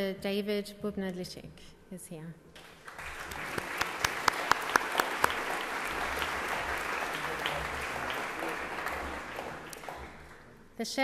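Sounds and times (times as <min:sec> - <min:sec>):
audience applauding: 0:02.6 - 0:10.5
sharp claps close to microphone: 0:02.6 - 0:10.5.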